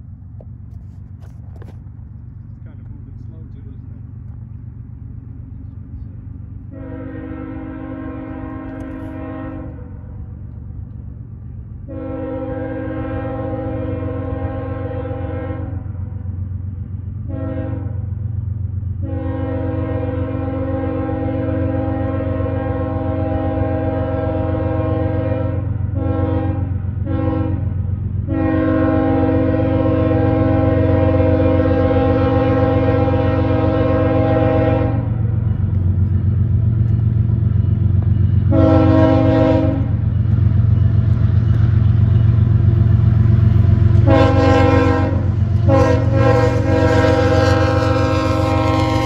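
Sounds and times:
diesel engine droning: 0.0 - 49.0
locomotive air horn blasts: 6.7 - 10.0, 11.9 - 16.0, 17.3 - 18.1, 19.0 - 35.3, 38.4 - 40.1, 43.5 - 49.0.

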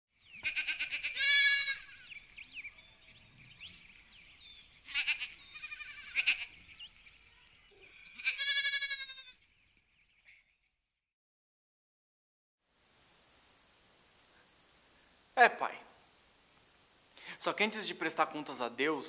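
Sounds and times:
goat bleating: 0.4 - 2.2, 4.8 - 6.6, 8.0 - 9.4.

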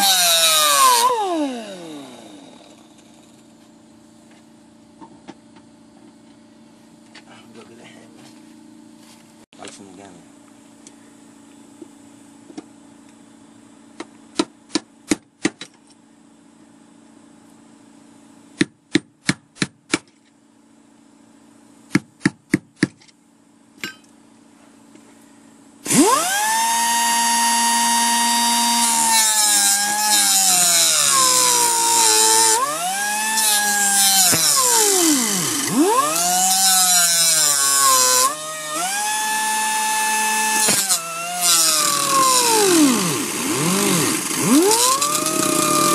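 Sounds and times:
grinder cutting metal: 0.0 - 3.4, 25.9 - 45.9.

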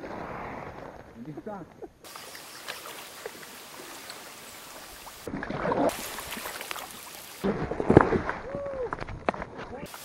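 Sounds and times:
wind and water noise: 2.0 - 10.0
water lapping: 2.1 - 8.5
kayak paddle splashing: 2.1 - 8.7.

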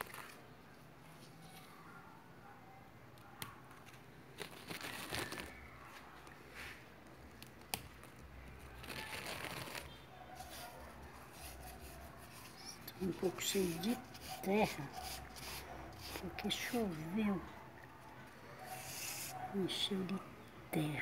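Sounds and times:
rustling and crinkling: 3.7 - 19.6.

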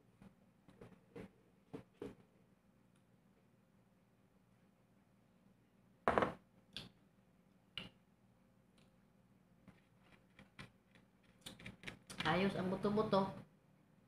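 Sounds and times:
cup tapped down on table: 6.1 - 6.4.

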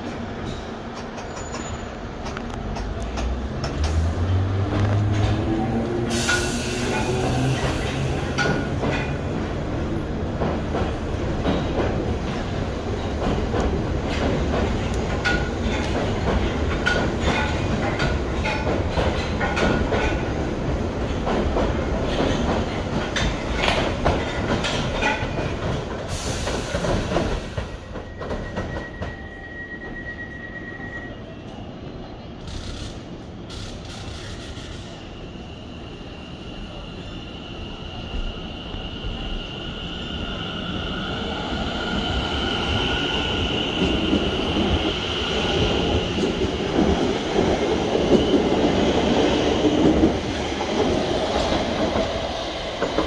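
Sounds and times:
wheel squeals: 28.0 - 31.2.

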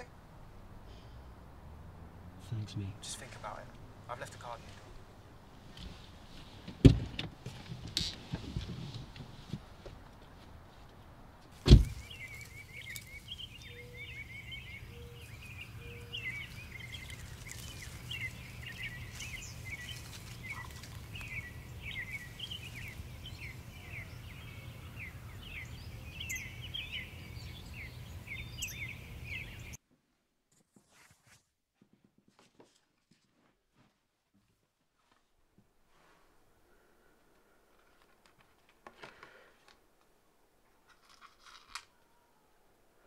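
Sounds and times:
birds chirping: 0.0 - 6.8, 11.6 - 29.8
loud thump: 11.6 - 12.1.

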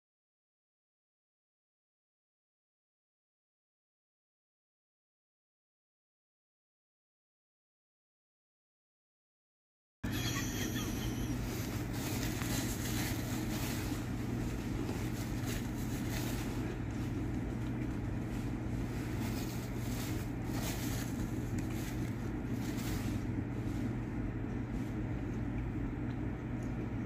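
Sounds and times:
low machine hum: 10.0 - 27.0
paper napkin rustling: 10.5 - 24.1.

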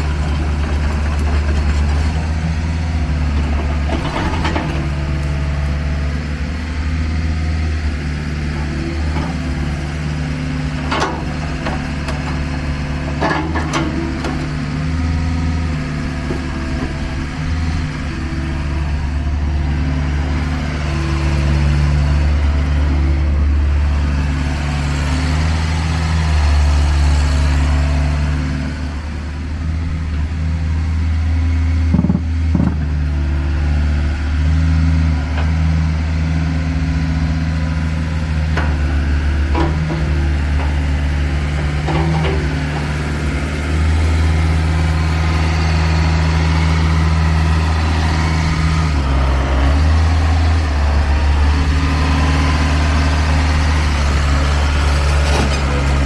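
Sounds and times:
excavator diesel engine idling: 0.0 - 56.0.

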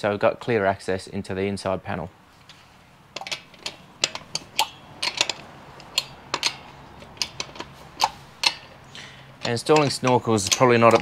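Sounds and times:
socket wrench clicking: 3.2 - 11.0.

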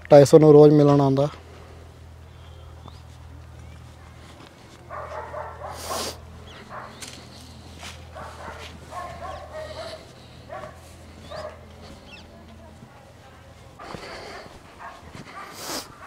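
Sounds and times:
dog barking and yelping: 4.8 - 7.3, 8.1 - 12.4, 14.7 - 16.0.

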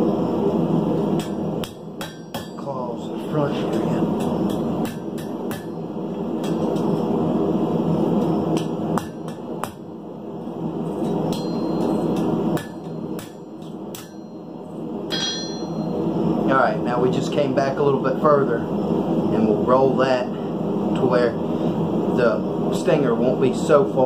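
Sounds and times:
steady rushing noise: 0.0 - 24.0
hammer striking hot steel on anvil: 1.0 - 2.9, 3.5 - 7.1, 8.2 - 9.9, 10.9 - 16.0.

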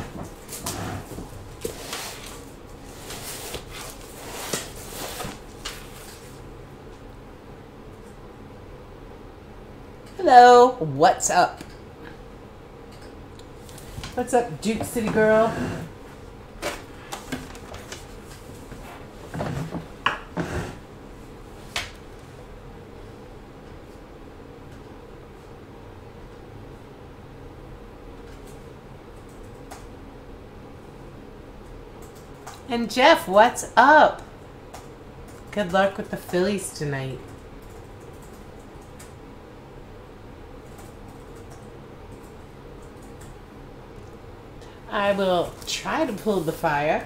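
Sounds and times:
low room hum: 0.0 - 47.0
objects knocking and rustling: 18.7 - 20.5.

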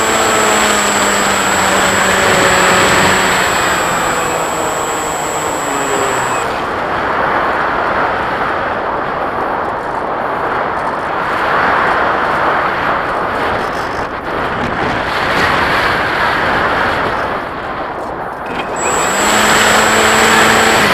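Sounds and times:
electric motor whine: 0.0 - 6.9, 18.4 - 20.9.

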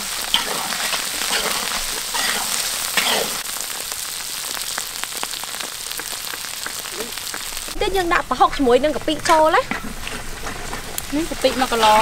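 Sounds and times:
frying in hot oil sizzling: 0.0 - 12.0
metal spatula stirring in wok: 0.2 - 3.4.

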